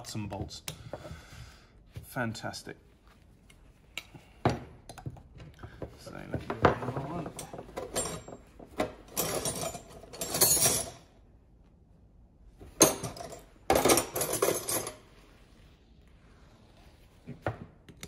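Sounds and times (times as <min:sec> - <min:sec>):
metal tools clattering in box: 0:06.8 - 0:11.1, 0:12.8 - 0:15.1.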